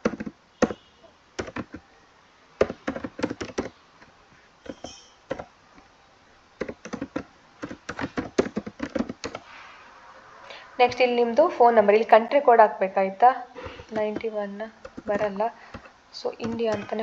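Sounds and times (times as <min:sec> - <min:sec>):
laptop keyboard typing: 0:00.0 - 0:00.8, 0:01.4 - 0:01.9, 0:02.6 - 0:03.8, 0:04.6 - 0:05.5, 0:06.6 - 0:09.5, 0:13.6 - 0:17.0.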